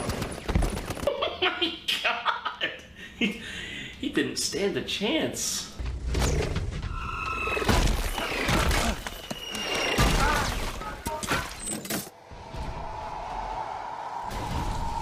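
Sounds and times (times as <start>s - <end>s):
crashes and impacts: 14.2s - 15.0s.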